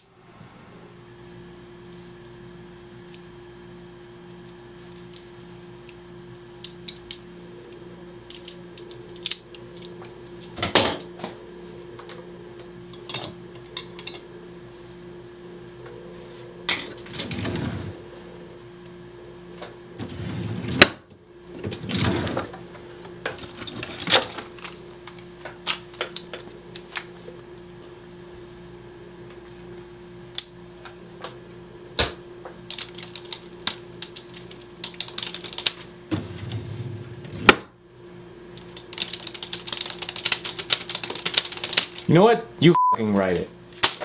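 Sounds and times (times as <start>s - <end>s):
low electrical hum: 0.0s - 44.0s
drawer scraping slides: 17.0s - 18.0s, 20.0s - 21.0s, 21.6s - 22.6s, 36.1s - 37.6s.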